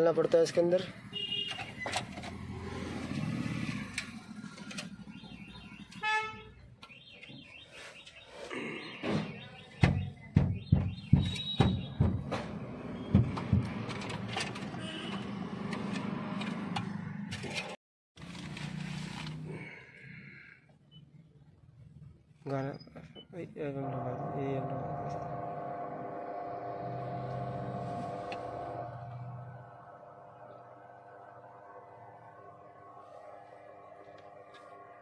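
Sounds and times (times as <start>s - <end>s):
short pitched tone: 23.6s - 34.0s
steady low hum: 23.6s - 35.0s.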